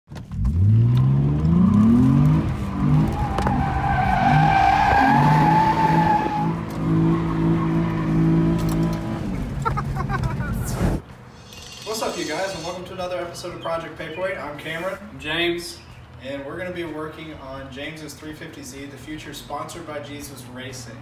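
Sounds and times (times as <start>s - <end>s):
car engine revving: 0.3s - 11.0s
tyres squealing: 2.5s - 8.6s, 11.3s - 13.1s.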